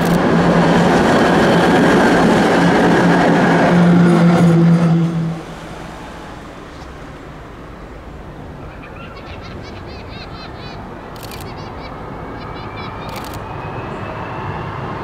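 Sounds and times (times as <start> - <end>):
street traffic noise: 0.0 - 15.0
bird chirping: 8.6 - 13.6.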